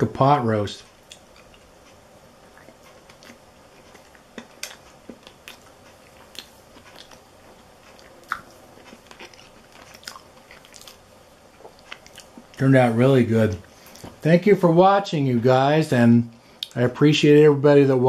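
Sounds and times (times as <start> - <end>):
person chewing food: 1.0 - 12.6.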